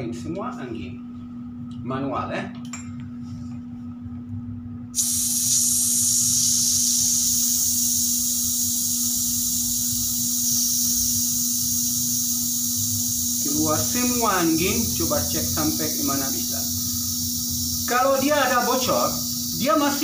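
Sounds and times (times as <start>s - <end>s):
air hissing from tyre valve: 5.0s - 20.0s.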